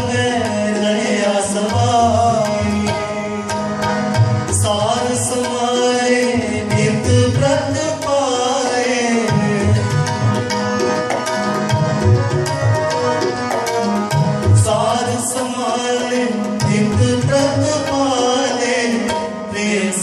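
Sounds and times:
tabla strokes: 0:00.0 - 0:15.4
harmonium chords: 0:00.0 - 0:20.0.

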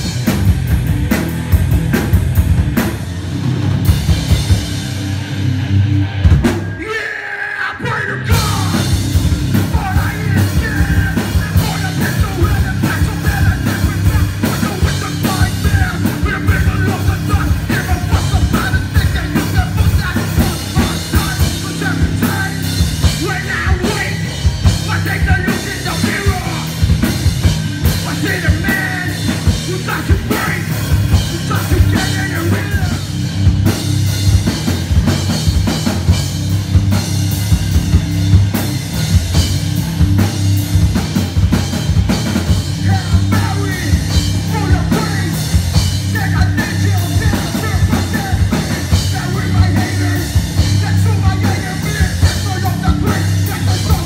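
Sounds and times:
drum kit beating: 0:00.0 - 0:07.0, 0:08.2 - 0:54.0
electric guitars bass and keyboard: 0:00.0 - 0:54.0
person singing: 0:06.7 - 0:26.8, 0:27.8 - 0:33.1, 0:42.7 - 0:54.0.

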